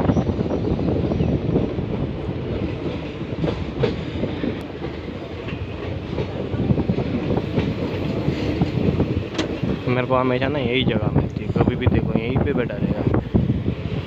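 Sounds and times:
train coaches rumbling: 0:00.0 - 0:14.0
wheels clacking over rail joints: 0:02.6 - 0:10.1.

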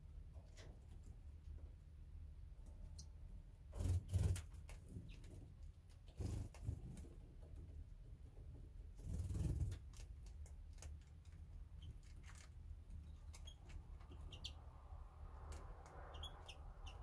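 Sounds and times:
faint finch chirps: 0:11.7 - 0:15.0, 0:15.6 - 0:17.0.

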